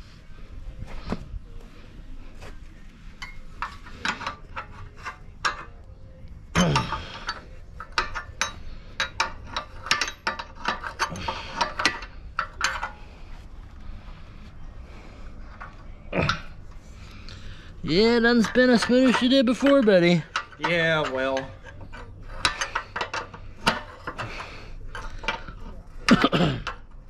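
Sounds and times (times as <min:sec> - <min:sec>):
hand tools clicking on metal: 0:03.2 - 0:05.8, 0:06.6 - 0:13.0, 0:18.0 - 0:27.0
metal clank: 0:06.6 - 0:13.0.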